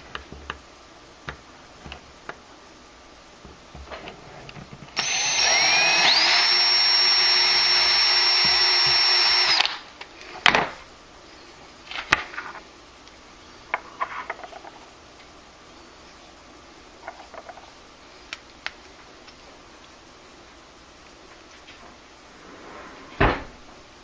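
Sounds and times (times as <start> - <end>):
electric drill whining: 5.0 - 9.8.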